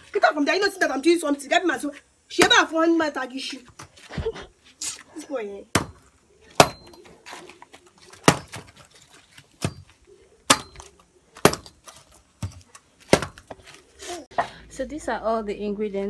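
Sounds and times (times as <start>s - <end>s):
machete chopping: 5.8s - 6.0s, 6.6s - 7.0s, 8.1s - 8.8s, 10.5s - 13.6s.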